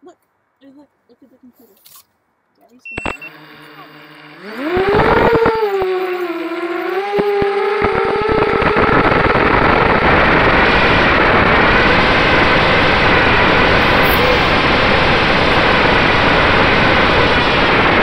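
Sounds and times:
drone motors whining: 2.9 - 18.0
wind rushing over microphone: 4.4 - 18.0.

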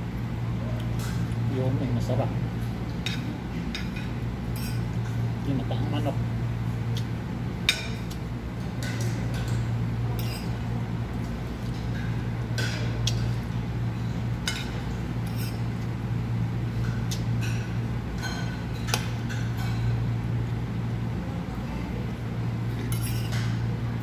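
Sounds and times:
steady low hum: 0.0 - 24.0
cutlery clinking on a plate: 22.8 - 23.6.

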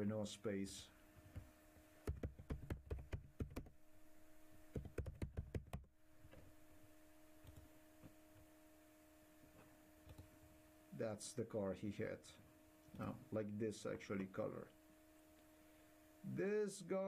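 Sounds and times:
faint steady hum: 0.0 - 17.0
keyboard typing: 2.1 - 3.7, 4.7 - 6.4, 10.1 - 10.3.

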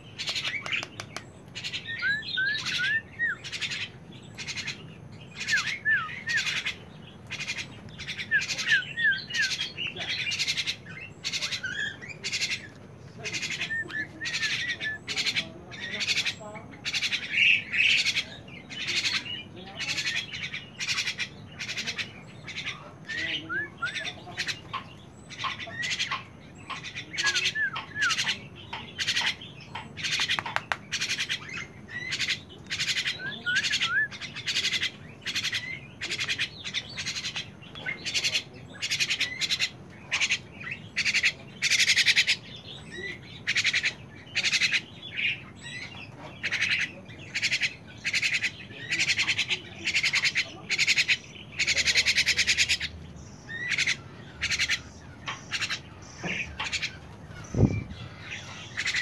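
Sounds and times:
birds squawking: 0.0 - 59.0.

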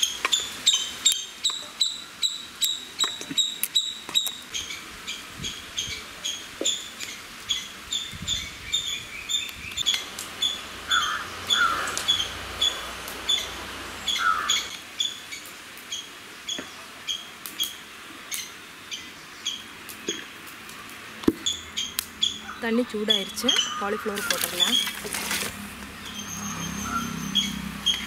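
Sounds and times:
lower animal calls: 9.9 - 15.1, 26.1 - 28.0.

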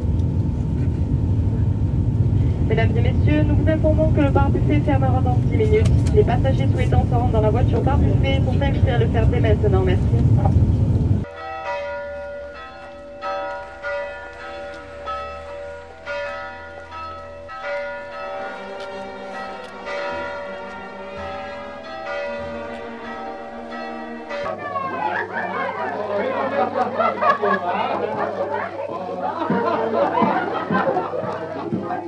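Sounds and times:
train interior rumble: 0.0 - 11.3
church bells pealing: 0.0 - 31.8.

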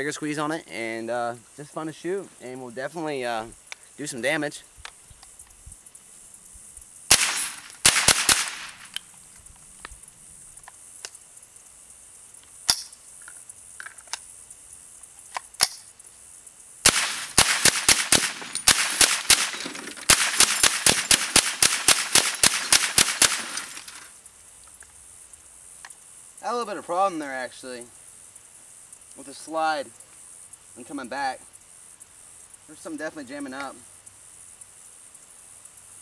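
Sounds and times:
rifle shots: 7.1 - 9.0, 16.8 - 24.0.

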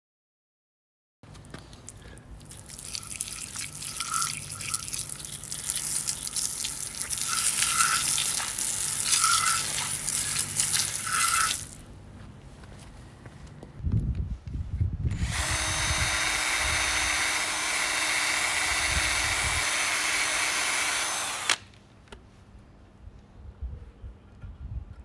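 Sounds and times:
water jet spraying on metal: 2.8 - 11.8.

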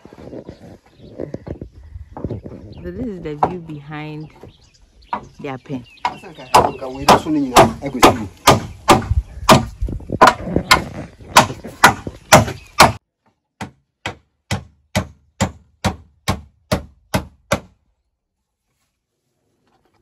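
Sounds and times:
sharp knocks on wood: 6.0 - 13.0, 13.6 - 17.8.

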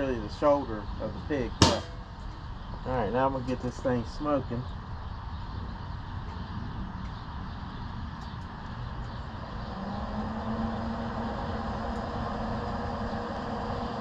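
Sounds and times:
grill motor humming: 9.0 - 14.0.

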